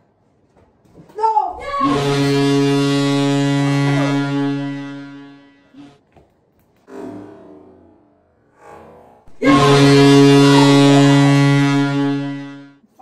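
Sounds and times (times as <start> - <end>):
deep goal horn blast: 1.6 - 6.0, 9.3 - 12.8.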